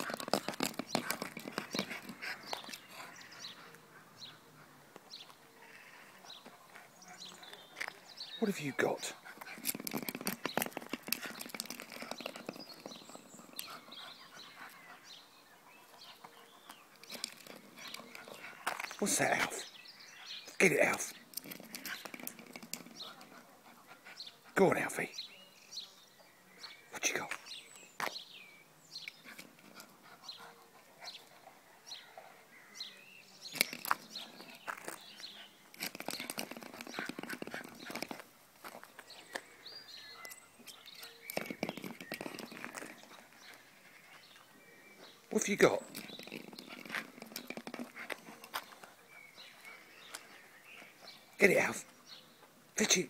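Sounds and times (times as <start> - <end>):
dog teeth scraping coconut husk: 0.0 - 3.2, 33.6 - 38.2
faint bird chirps: 38.9 - 52.5.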